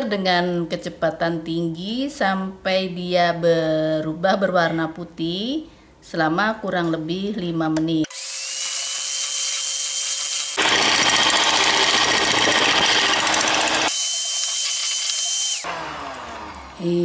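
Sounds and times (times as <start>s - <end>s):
electric hand mixer whine: 8.1s - 17.0s.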